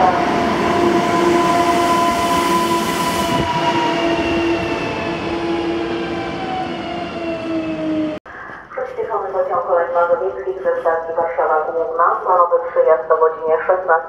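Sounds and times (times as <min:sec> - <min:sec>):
electric train motor whine: 0:00.0 - 0:08.2.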